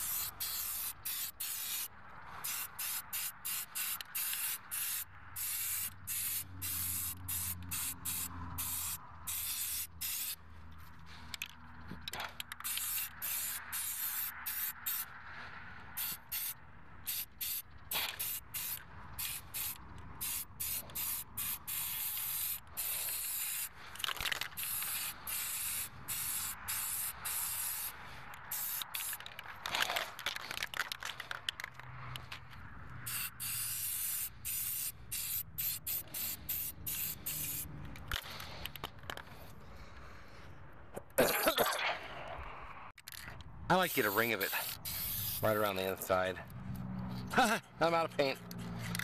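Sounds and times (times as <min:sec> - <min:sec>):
spray paint can hissing: 0:00.0 - 0:10.4, 0:12.1 - 0:15.2, 0:16.0 - 0:29.8, 0:33.0 - 0:38.9, 0:43.7 - 0:46.0.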